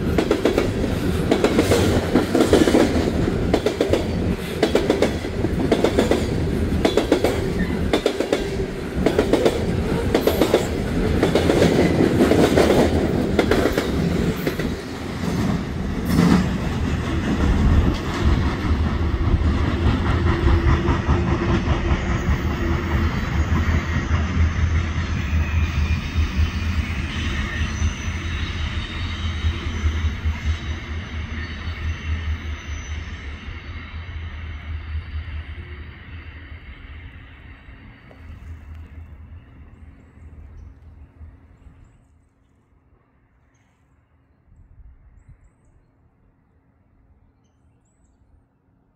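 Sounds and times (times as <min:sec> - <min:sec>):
train wheels clicking over rail joints: 0:00.0 - 0:24.4
train low rumble: 0:00.0 - 0:47.5.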